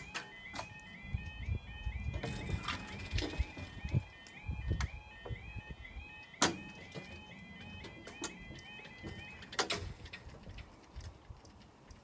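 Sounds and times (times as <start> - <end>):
level crossing two-tone alarm: 0.0 - 10.0
sharp clicks and knocks: 6.2 - 12.0.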